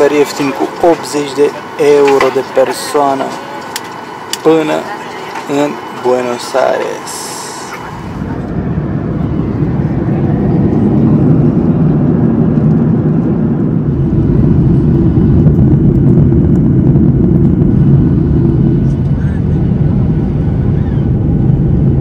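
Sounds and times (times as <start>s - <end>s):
jet engine and airflow rumble: 0.0s - 22.0s.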